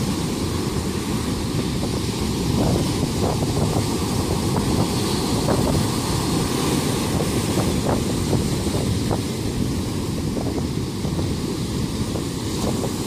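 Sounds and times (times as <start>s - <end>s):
waves breaking on beach: 0.0s - 13.0s
wind buffeting microphone: 0.0s - 13.0s.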